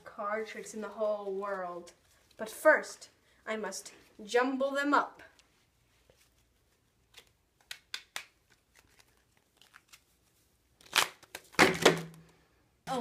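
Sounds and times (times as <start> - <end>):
playing cards being shuffled: 6.0 - 12.3.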